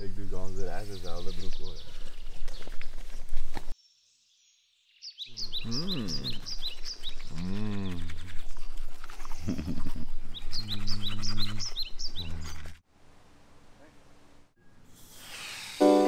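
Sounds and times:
bird chirping: 0.0s - 3.0s, 3.8s - 12.8s
man humming: 5.4s - 6.5s, 7.2s - 8.4s, 9.4s - 12.7s
toothbrush bristles scrubbing: 5.7s - 12.8s.

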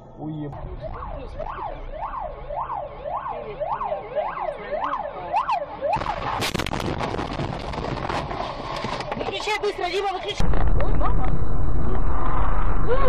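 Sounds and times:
siren wailing: 0.0s - 6.5s
loud crunching crash: 5.9s - 9.2s.

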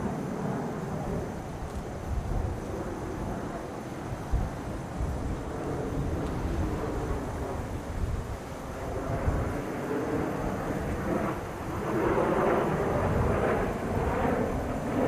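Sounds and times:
distant jet aircraft rumble: 0.0s - 15.0s.

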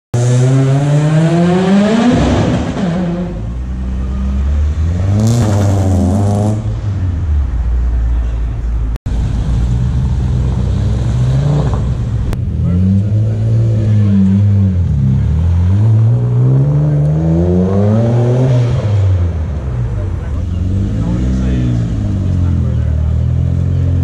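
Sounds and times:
car engines revving: 0.2s - 24.0s
low engine rumble: 19.0s - 24.0s.

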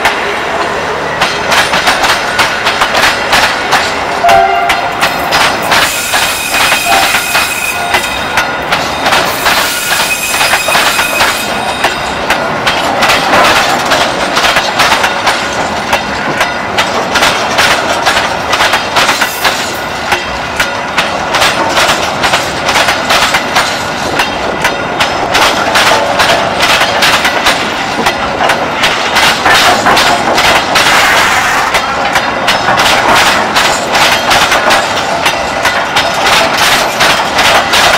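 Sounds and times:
train wheels clattering: 0.0s - 37.9s
high wheel squeal: 5.9s - 8.3s, 9.3s - 12.1s.

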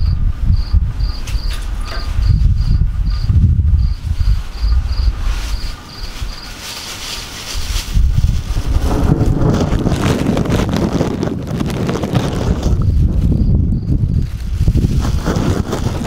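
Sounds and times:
crickets chirping: 0.0s - 10.4s, 12.2s - 16.0s
wind rushing on microphone: 0.0s - 16.0s.

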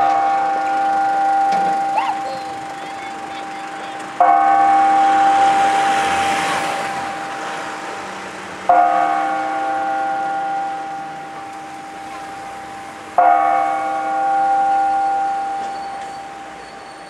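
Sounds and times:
tower bell ringing: 0.0s - 17.0s.

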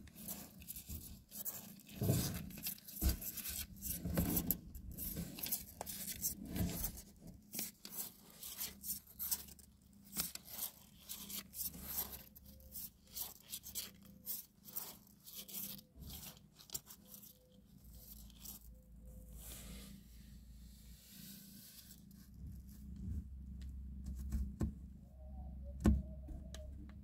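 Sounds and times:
kittens rustling in cardboard box: 0.0s - 18.8s.

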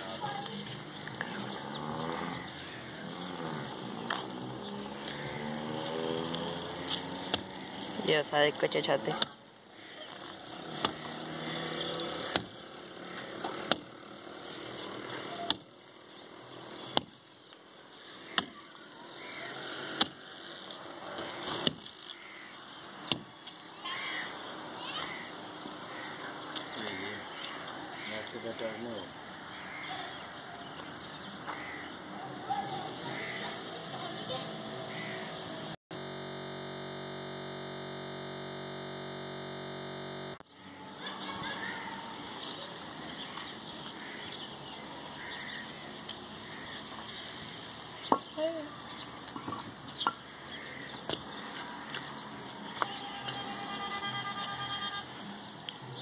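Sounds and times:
outdoor background noise: 0.0s - 56.0s
electronic buzzing tone: 34.5s - 40.5s.

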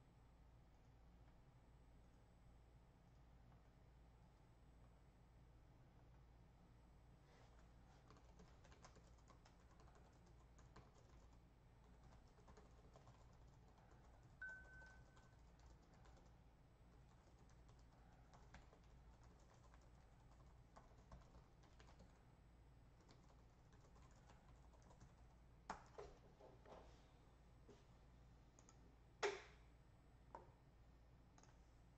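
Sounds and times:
low steady hum: 0.0s - 31.9s
keyboard typing and clicks: 8.0s - 22.2s, 23.0s - 26.1s, 28.6s - 29.4s, 31.4s - 31.6s
high beep: 14.4s - 15.3s.

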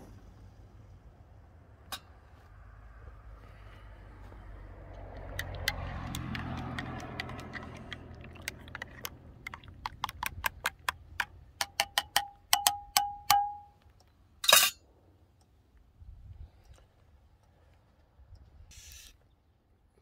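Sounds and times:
spoon swishing in coffee: 6.3s - 10.2s
spoon clinking against mug: 11.6s - 13.7s.

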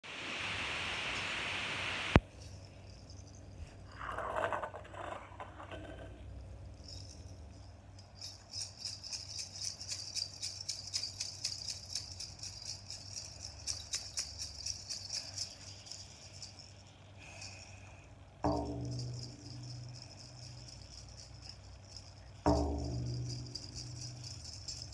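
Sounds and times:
bells jingling: 2.3s - 4.0s, 6.7s - 24.9s
frame drum beat: 21.9s - 24.9s.

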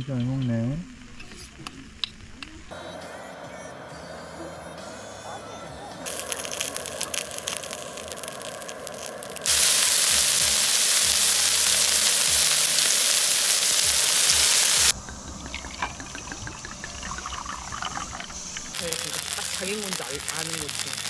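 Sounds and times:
meat sizzling on a griddle: 6.0s - 15.0s, 16.0s - 21.0s
wine pouring into a glass: 15.0s - 20.2s.

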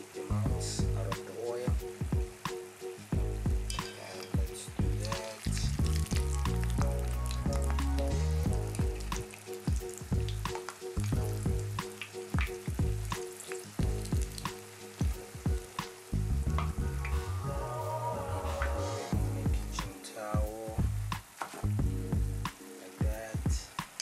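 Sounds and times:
background music with held notes: 0.0s - 24.0s
dough frying in hot oil: 0.1s - 17.2s.

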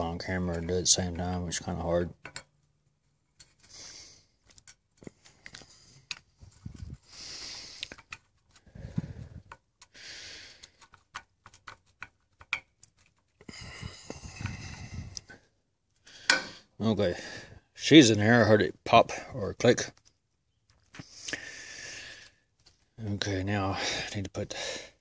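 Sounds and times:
small metal clicks and knocks: 2.1s - 3.8s, 4.4s - 6.9s, 7.8s - 13.5s
hissing breaths: 3.6s - 4.5s, 7.0s - 11.1s, 13.4s - 17.8s, 20.9s - 22.5s.

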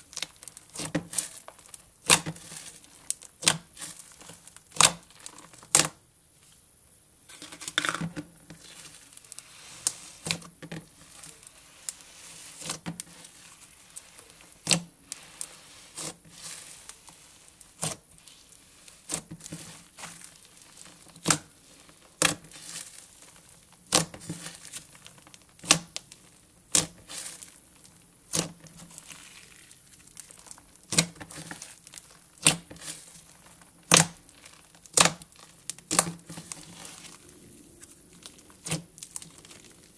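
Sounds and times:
slime kneaded crinkling: 0.0s - 6.6s, 8.3s - 39.9s
slime popping: 26.7s - 39.9s.

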